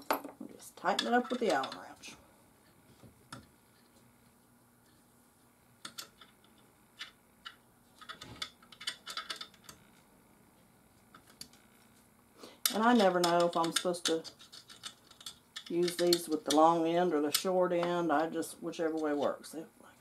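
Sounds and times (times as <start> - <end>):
allen wrench clicking: 12.6 - 16.6.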